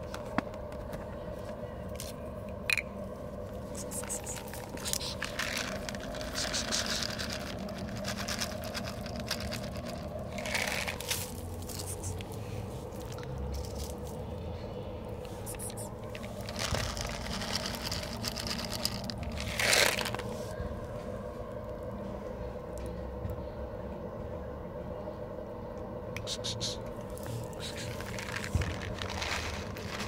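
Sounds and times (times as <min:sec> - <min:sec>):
faint hum: 0:00.0 - 0:30.0
dry kibble pattering onto concrete: 0:03.7 - 0:14.2, 0:15.4 - 0:20.4, 0:27.2 - 0:30.0.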